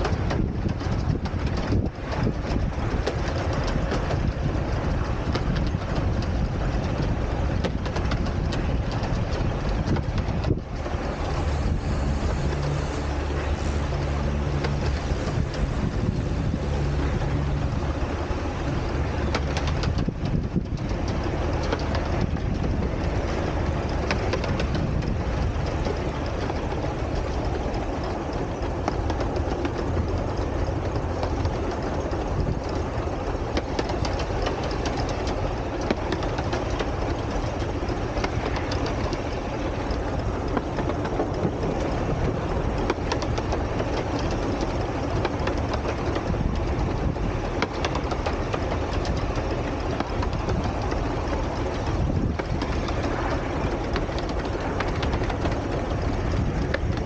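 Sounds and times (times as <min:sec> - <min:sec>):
miniature train rumbling: 0:00.0 - 0:57.0
wheels clattering on rails: 0:00.0 - 0:57.0.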